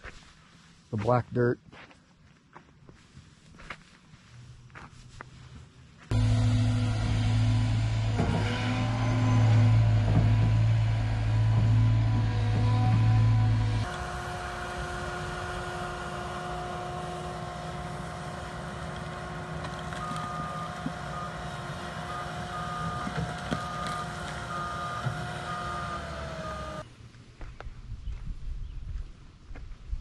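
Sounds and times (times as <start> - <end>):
footsteps: 0.0 - 6.2
track loader engine and hydraulic whine: 6.0 - 27.1
heavy engine hum: 6.1 - 26.9
reversing alarm beeping: 16.3 - 26.8.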